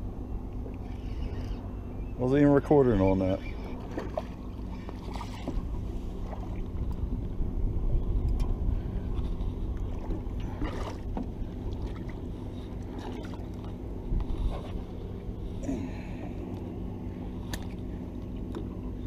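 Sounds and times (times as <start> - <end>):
outboard motor idling: 0.0 - 19.0
light knocks from fishing rod: 17.4 - 17.8.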